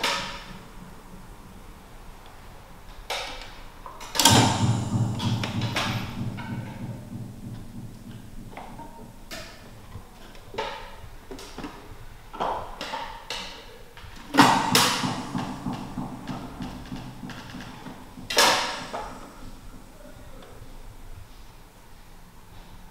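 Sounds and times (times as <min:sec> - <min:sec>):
loud clatter: 0:04.2 - 0:10.0, 0:14.3 - 0:20.1.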